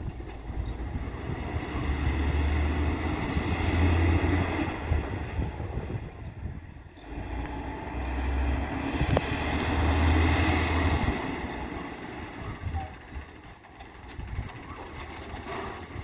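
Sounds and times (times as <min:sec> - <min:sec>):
garbage truck engine rumble: 0:00.0 - 0:16.0.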